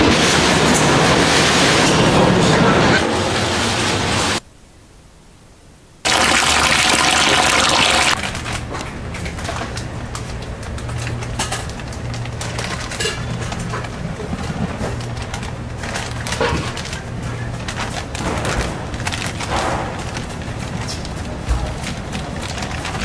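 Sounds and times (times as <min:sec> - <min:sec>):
crackles: 0:06.0 - 0:23.0
powder pouring into metal pot: 0:06.1 - 0:08.4
plastic bag crinkling: 0:10.6 - 0:23.0.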